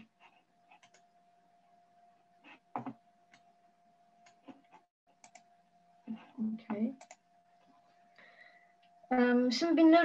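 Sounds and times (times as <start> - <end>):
steady low hum: 0.0 - 10.0
keyboard and mouse clicks: 0.7 - 1.1, 4.2 - 5.5, 6.7 - 7.2.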